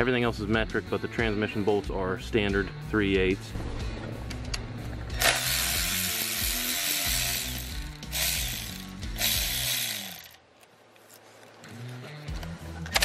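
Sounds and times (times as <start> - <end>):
power ratchet running: 5.2 - 10.4.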